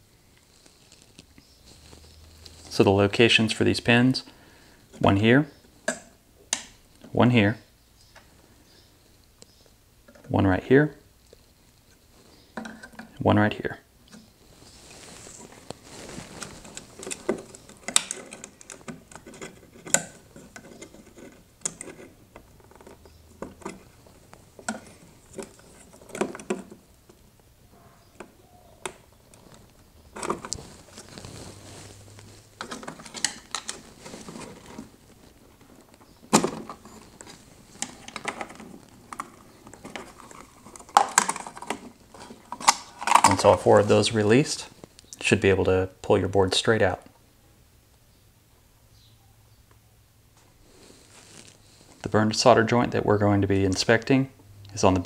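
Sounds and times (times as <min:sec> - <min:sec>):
plastic and metal clicks and scrapes: 0:15.6 - 0:27.2, 0:32.2 - 0:43.6.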